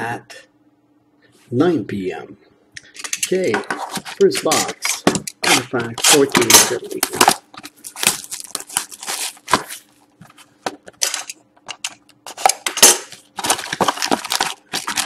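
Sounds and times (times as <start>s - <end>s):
plastic wrap crinkling: 5.5s - 10.6s, 11.8s - 15.0s.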